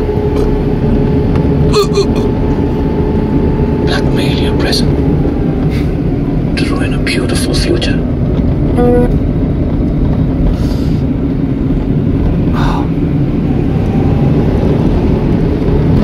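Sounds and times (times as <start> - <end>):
engine and road noise rumble: 0.0 - 16.0
short tone: 8.7 - 9.2.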